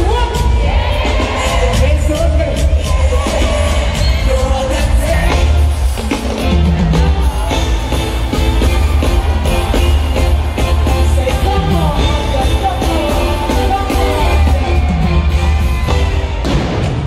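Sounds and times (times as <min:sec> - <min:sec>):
live concert music with heavy bass: 0:00.0 - 0:17.0
person singing: 0:10.6 - 0:15.6.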